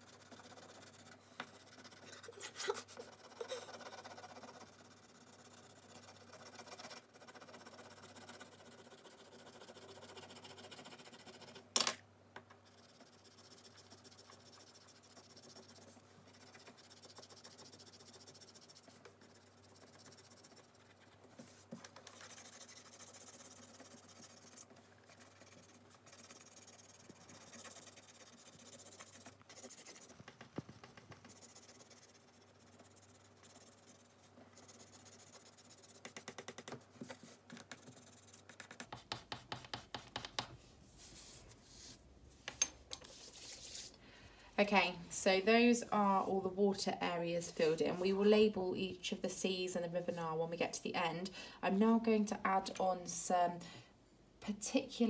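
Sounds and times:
pencil shading on paper: 0.0 - 11.7, 12.6 - 42.0.

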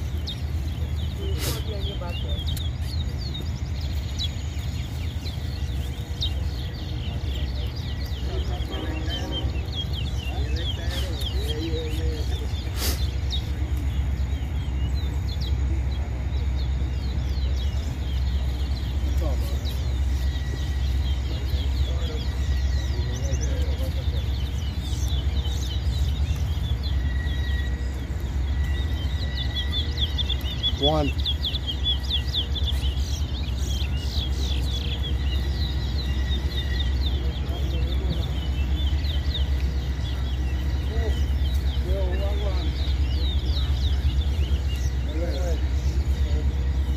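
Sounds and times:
low rumble: 0.0 - 46.9
songbirds chirping: 0.0 - 46.9
brief hiss: 12.7 - 13.2.

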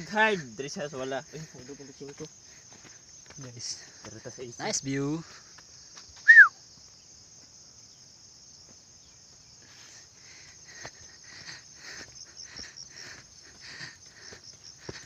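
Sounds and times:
footsteps on muddy dirt trail: 0.0 - 15.0
high-pitched insect chorus: 0.0 - 15.0.

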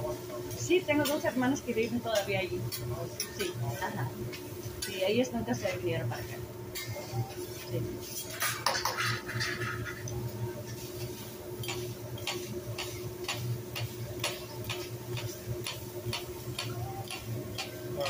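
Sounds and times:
knife and spatula on metal griddle: 6.7 - 18.0.

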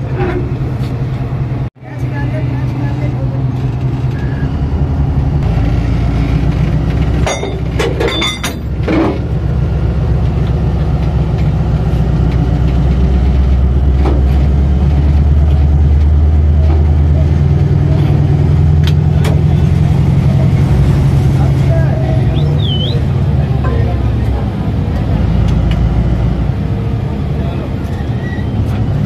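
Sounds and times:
locomotive engine idling: 0.0 - 29.0
metal clanks of coupler: 7.2 - 9.2.

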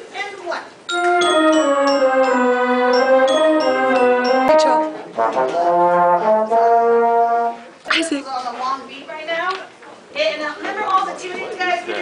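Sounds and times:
brass band chords: 0.9 - 7.8
french horn: 1.0 - 7.8.

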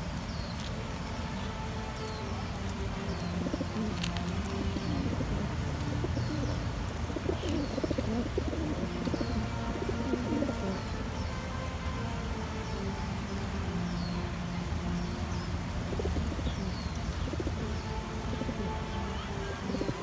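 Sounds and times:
pigeons cooing: 2.8 - 11.7, 15.8 - 20.0.

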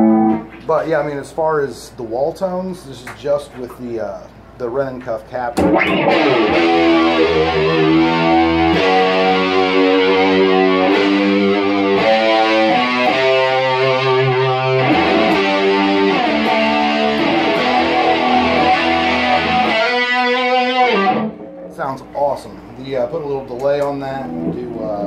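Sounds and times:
overdriven electric guitar chords: 0.0 - 0.6, 5.6 - 22.2.

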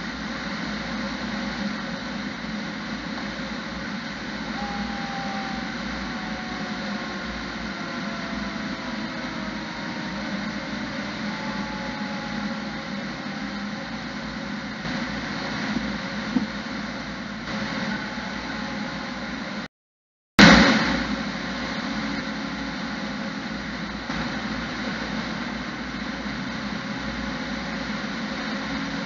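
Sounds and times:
truck engine and tyre rumble: 0.0 - 19.6.

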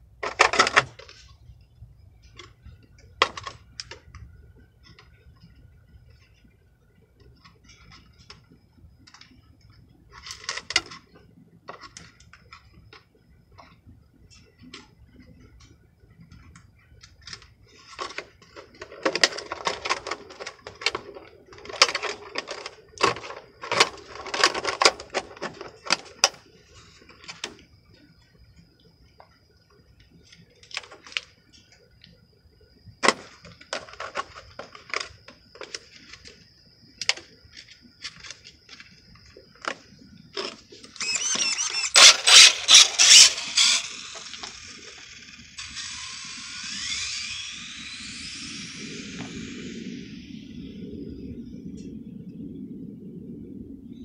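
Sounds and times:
faint high whine: 0.0 - 54.0
plastic parts clicking and rattling: 0.2 - 1.3, 2.2 - 6.3, 10.1 - 13.0, 16.3 - 27.6, 30.2 - 32.1, 33.0 - 36.4, 37.0 - 49.7.

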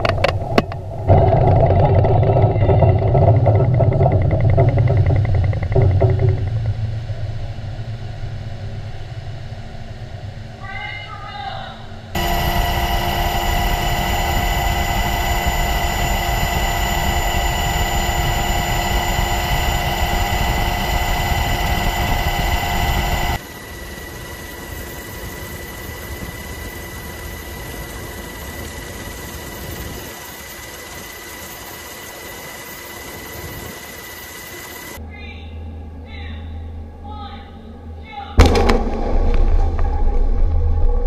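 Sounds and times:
aircraft engine drone on board: 0.0 - 35.0.

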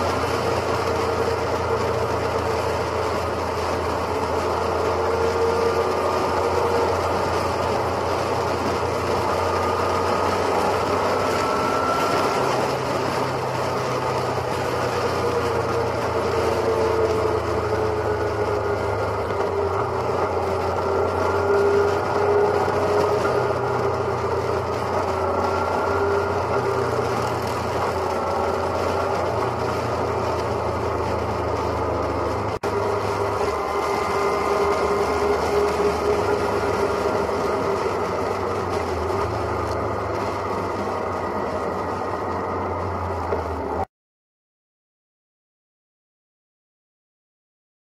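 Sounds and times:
motorcycle engine drone: 0.0 - 43.9
wind and road noise: 0.0 - 43.9.

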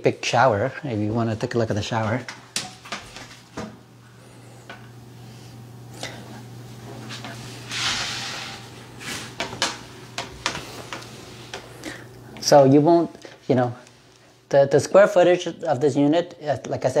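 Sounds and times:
steady low hum: 0.0 - 17.0
rough scraping noise: 7.6 - 9.3.

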